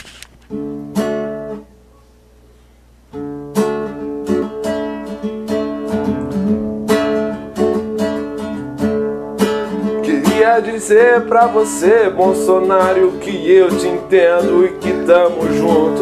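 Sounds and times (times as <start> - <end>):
acoustic guitar strumming: 0.1 - 1.8, 3.1 - 16.0.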